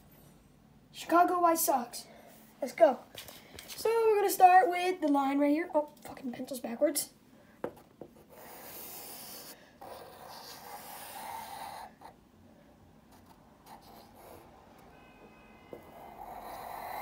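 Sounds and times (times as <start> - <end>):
pencil scratching on paper: 8.2 - 12.2, 13.1 - 14.6, 15.7 - 17.0.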